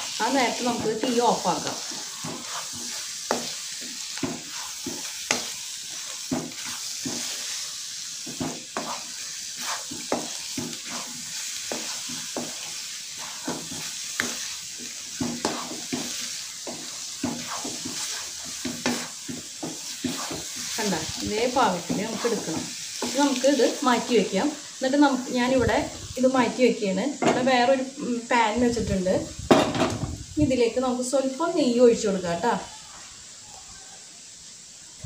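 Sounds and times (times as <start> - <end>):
spatula scraping pan: 0.0 - 24.2
steady sizzle: 0.0 - 35.0.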